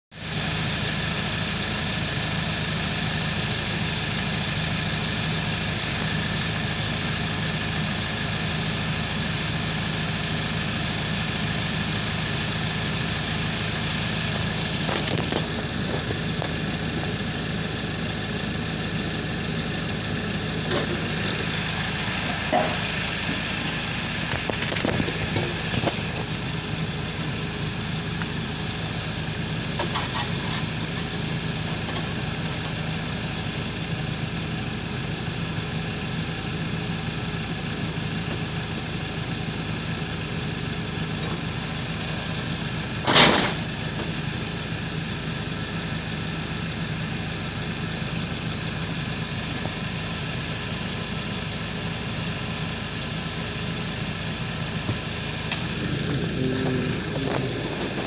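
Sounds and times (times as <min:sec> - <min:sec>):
diesel engine idling: 0:00.1 - 0:58.0
high-pitched turbo whine: 0:00.2 - 0:58.0.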